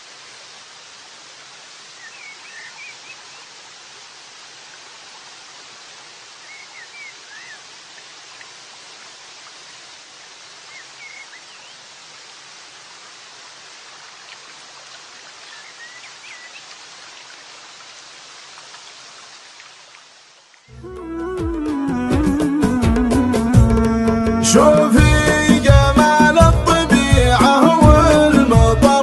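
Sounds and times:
running water rushing: 0.0 - 23.8
high bird chirps: 2.0 - 3.4, 6.4 - 7.6, 10.7 - 11.8.

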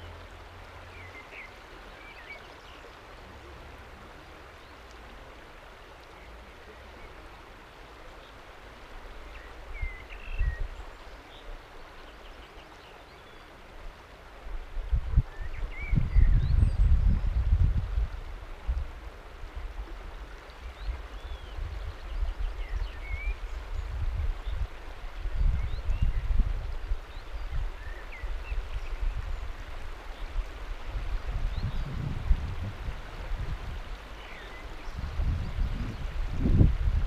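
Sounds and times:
river water rushing and lapping: 0.0 - 37.0
wind buffeting microphone: 14.6 - 20.0, 20.7 - 34.0, 34.6 - 37.0.

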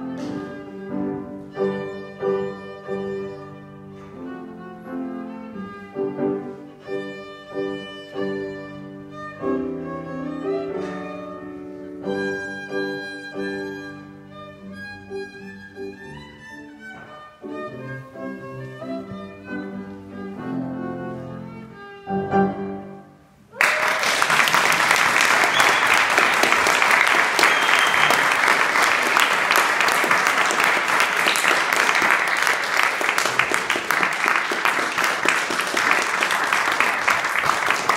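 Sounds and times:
violin music: 0.0 - 23.4
audience clapping: 23.5 - 37.9.

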